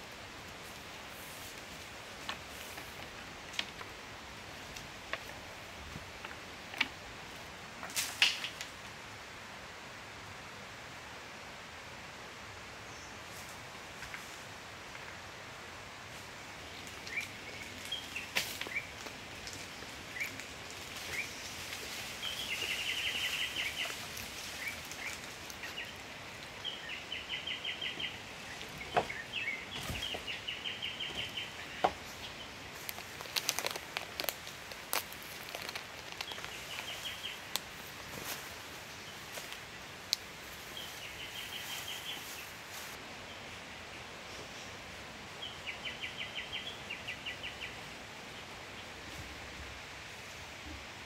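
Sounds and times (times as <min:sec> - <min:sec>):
forest background hiss: 0:00.0 - 0:51.0
sharp snaps and knocks: 0:07.8 - 0:08.8, 0:32.8 - 0:37.7
birds chirping and trilling: 0:19.6 - 0:39.4, 0:40.6 - 0:44.8.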